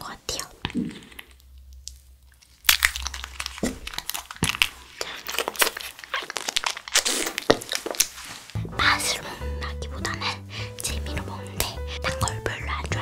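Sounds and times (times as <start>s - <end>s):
plastic wrapper crinkling: 0.8s - 8.6s.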